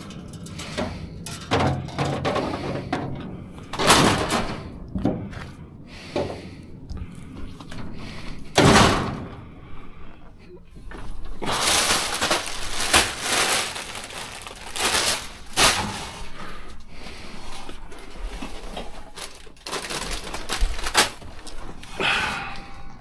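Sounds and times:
metal wire rack clanking and rattling: 0.0s - 3.2s.

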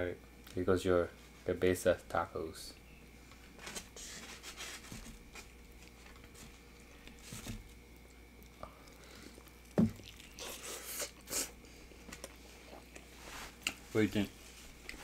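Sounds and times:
rustling and handling of food: 3.2s - 15.0s
biting and chewing: 5.5s - 13.8s.

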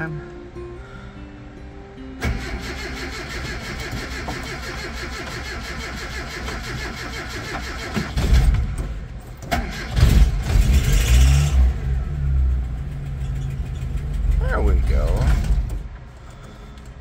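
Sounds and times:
engine cranking on starter: 2.2s - 11.9s
engine catching and revving: 9.4s - 15.8s.

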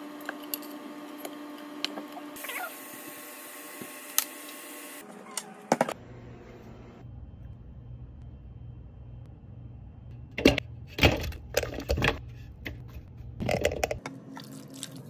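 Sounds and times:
steady hum: 6.0s - 14.4s.

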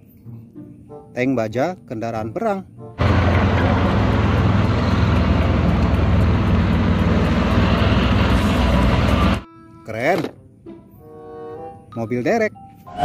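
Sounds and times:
tank engine rumbling: 3.0s - 9.4s
tank tracks: 3.0s - 9.4s.

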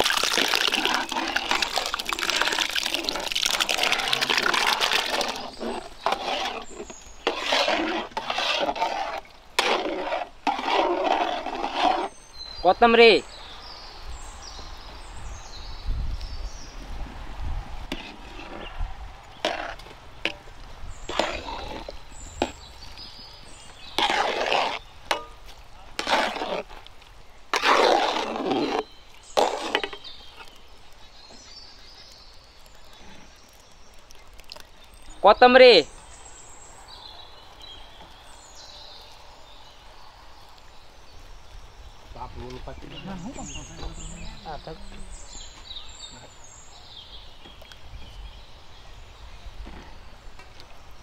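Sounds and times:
spatula scraping and knocking pan: 0.4s - 12.2s, 17.9s - 18.7s, 21.0s - 22.6s, 23.7s - 25.4s, 26.0s - 26.7s, 27.6s - 30.6s.

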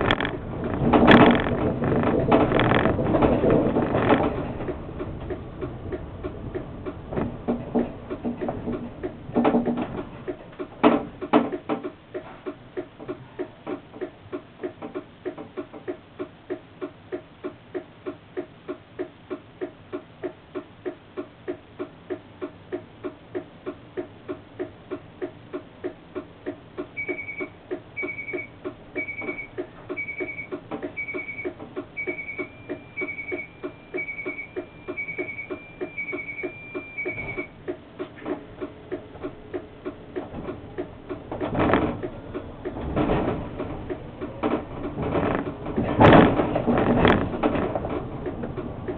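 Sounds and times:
high electronic beep: 27.0s - 37.5s.

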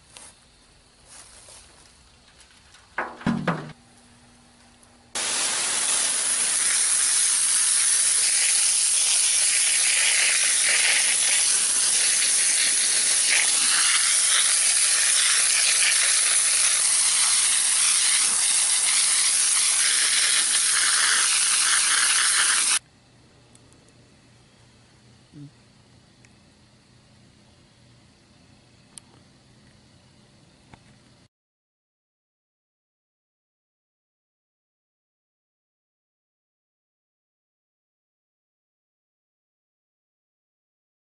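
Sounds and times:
knock: 3.0s - 3.8s
hose water spraying: 5.2s - 22.8s.

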